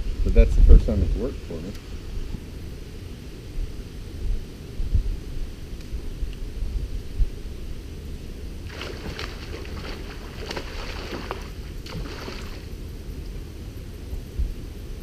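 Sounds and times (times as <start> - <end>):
wind rumble on microphone: 0.0 - 15.0
water lapping against boat hull: 8.7 - 12.7.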